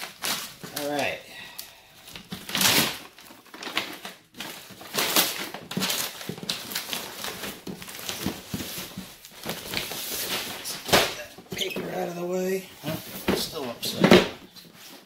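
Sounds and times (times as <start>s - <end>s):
wrapping paper crinkling: 0.0s - 10.9s.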